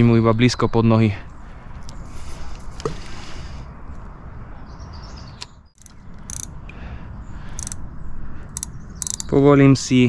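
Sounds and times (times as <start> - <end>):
fishing reel clicking: 5.8 - 6.5, 7.6 - 7.8, 8.5 - 9.3.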